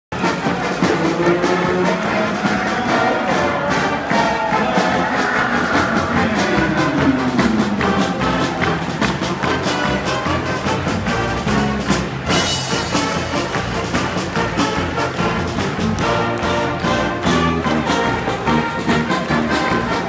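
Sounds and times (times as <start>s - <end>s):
brass section playing: 0.1s - 20.0s
drum kit beat: 0.1s - 20.0s.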